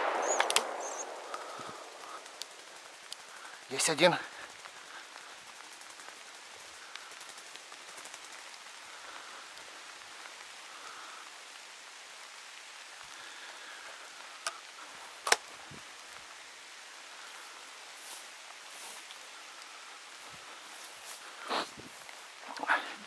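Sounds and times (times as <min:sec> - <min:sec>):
shotgun shot: 0:00.0 - 0:02.3
rain pattering on foliage: 0:00.0 - 0:23.0
sharp click: 0:00.2 - 0:01.0.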